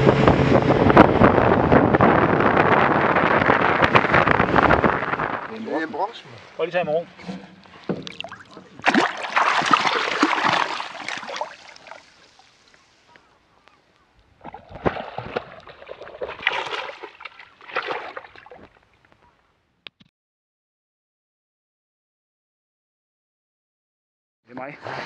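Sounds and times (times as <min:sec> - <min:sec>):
water splashing and sloshing: 0:03.3 - 0:13.3, 0:14.1 - 0:19.2.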